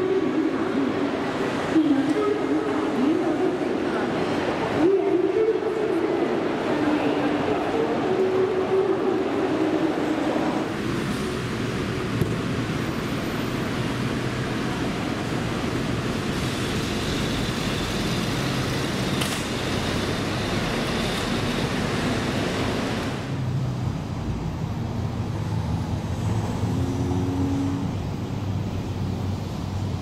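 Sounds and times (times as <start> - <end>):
distant city traffic hum: 0.0 - 30.0
road traffic hiss: 10.0 - 30.0.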